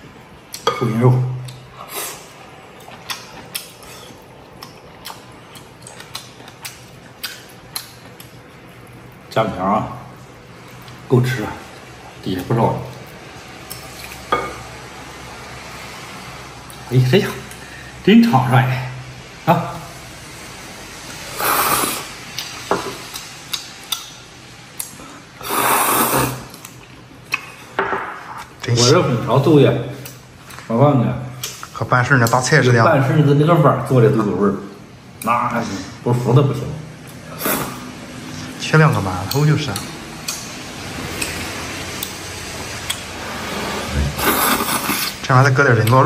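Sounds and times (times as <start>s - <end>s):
person slurping noodles: 21.2s - 22.2s, 25.4s - 26.6s, 37.2s - 37.9s, 43.2s - 45.2s
chewing and chopstick clicks: 38.9s - 40.5s.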